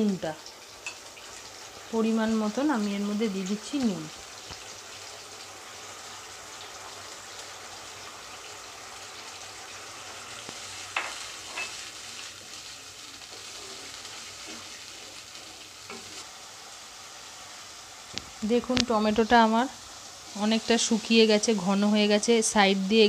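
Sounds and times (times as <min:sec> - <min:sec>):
puree sizzling in hot oil: 0:00.0 - 0:23.0
stirring in pan: 0:03.5 - 0:21.8
spatula striking pan: 0:10.9 - 0:11.8.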